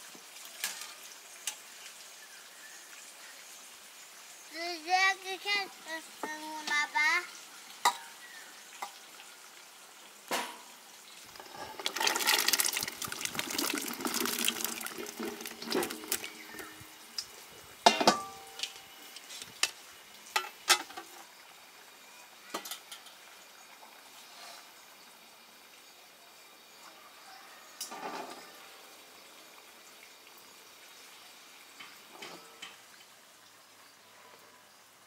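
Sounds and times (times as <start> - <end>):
water splashing: 11.3 - 17.2.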